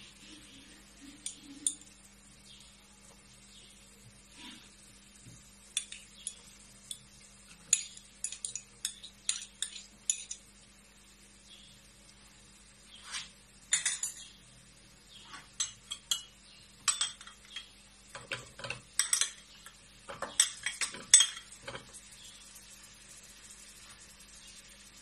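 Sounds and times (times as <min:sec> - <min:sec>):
spoon clinking against metal pot: 0:07.7 - 0:10.4, 0:13.7 - 0:14.4, 0:15.6 - 0:21.9.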